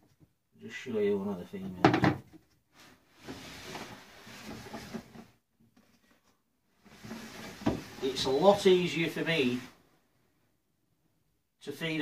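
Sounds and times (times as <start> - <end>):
plastic tub scraping on shelf: 2.8 - 5.4, 6.8 - 9.7.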